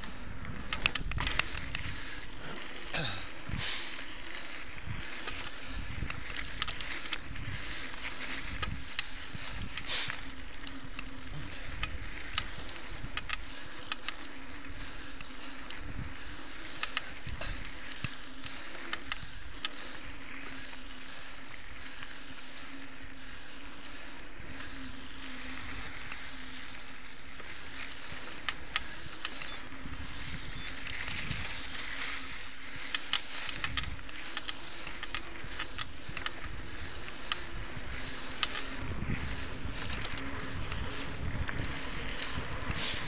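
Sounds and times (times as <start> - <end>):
bike clicks and rattles: 0.0 - 43.0
bike tyre and drivetrain noise: 0.0 - 43.0
wind gusts on microphone: 4.6 - 13.3, 29.0 - 32.4, 35.3 - 43.0.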